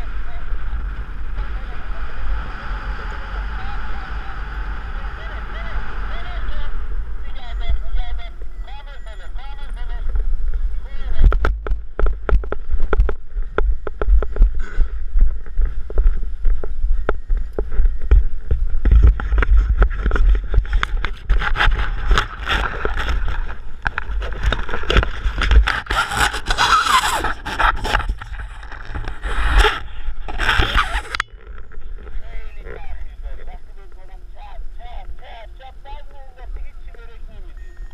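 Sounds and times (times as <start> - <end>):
wind rushing over microphone: 0.0 - 37.9
knocks and crunches on gravel: 11.3 - 26.6.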